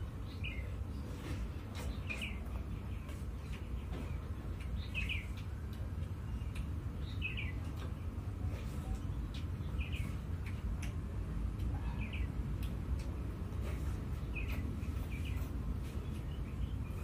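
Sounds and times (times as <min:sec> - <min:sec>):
bird chirping: 0:00.0 - 0:10.9, 0:14.1 - 0:17.0.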